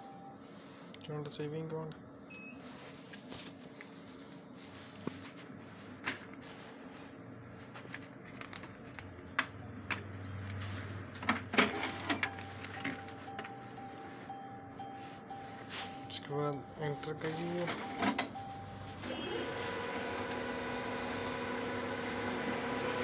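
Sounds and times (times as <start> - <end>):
short machine beep: 12.1 - 19.4.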